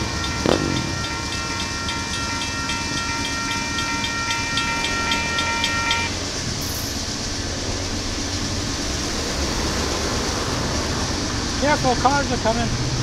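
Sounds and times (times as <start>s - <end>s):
crossing bell ringing: 0.0s - 7.0s
freight cars rumbling on rails: 0.0s - 13.0s.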